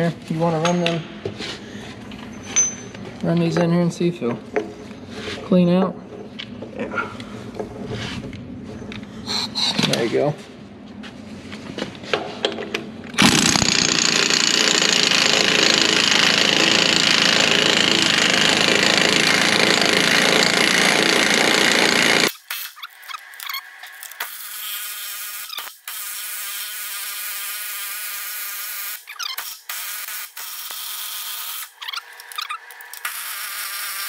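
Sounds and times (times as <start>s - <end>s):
pneumatic impact wrench hammering: 13.2s - 34.0s
tool spinning with buzzing whine: 13.2s - 34.0s.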